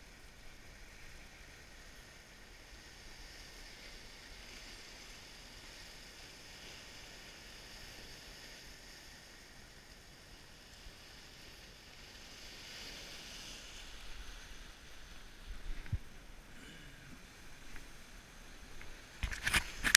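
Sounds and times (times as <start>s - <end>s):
surf washing over rocks: 0.0s - 19.9s
wind rumble on microphone: 12.4s - 16.3s.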